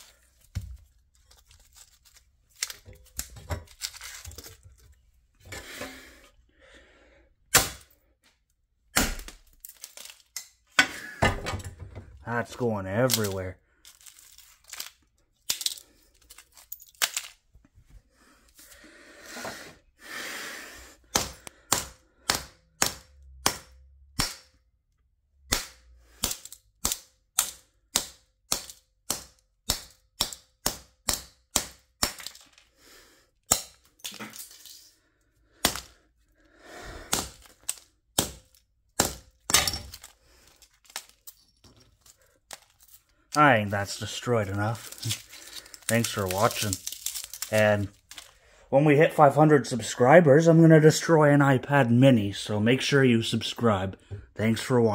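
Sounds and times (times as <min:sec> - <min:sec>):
tool smashing phone: 0:07.5 - 0:08.0, 0:08.9 - 0:11.8, 0:25.5 - 0:32.7, 0:33.4 - 0:34.8, 0:35.6 - 0:36.0, 0:37.1 - 0:43.1.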